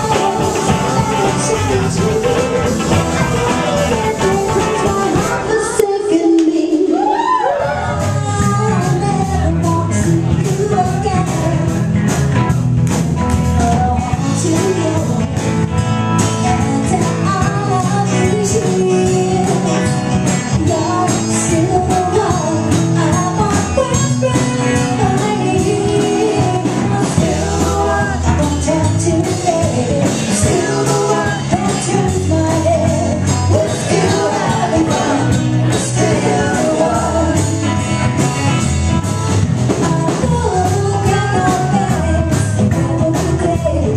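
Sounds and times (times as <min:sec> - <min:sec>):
person singing: 0:00.0 - 0:11.8, 0:20.5 - 0:37.8
live rock band playing: 0:00.0 - 0:43.9.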